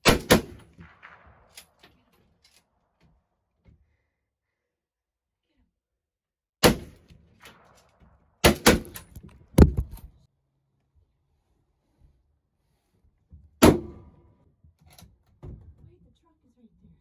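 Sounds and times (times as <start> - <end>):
sharp knocks: 8.7 - 10.1.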